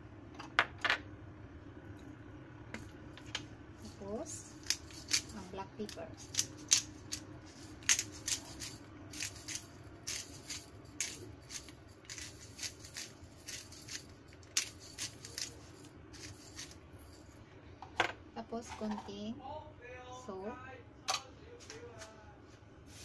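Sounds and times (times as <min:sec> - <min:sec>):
pepper grinder clicking: 0:04.5 - 0:16.8.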